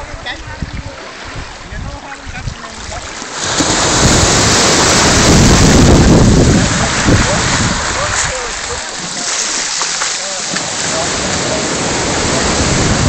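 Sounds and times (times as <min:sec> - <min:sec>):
shallow water lapping: 0:00.1 - 0:13.0
wave breaking on pebble beach: 0:03.3 - 0:13.0.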